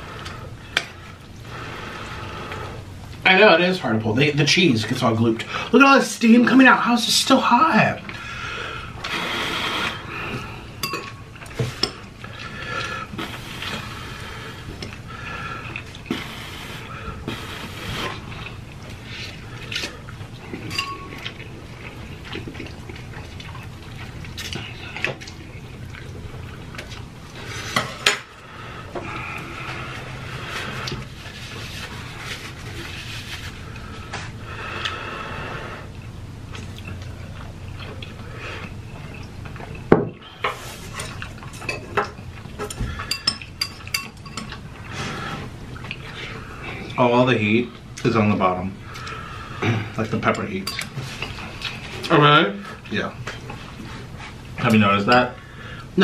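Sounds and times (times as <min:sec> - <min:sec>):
noodles slurped and chewed: 0:08.0 - 0:47.0
utensils clinking on metal pan: 0:10.8 - 0:12.0, 0:20.7 - 0:21.2.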